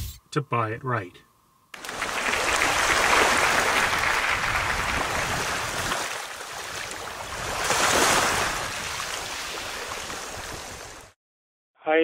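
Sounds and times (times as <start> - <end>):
ocean waves breaking: 1.8 - 11.2.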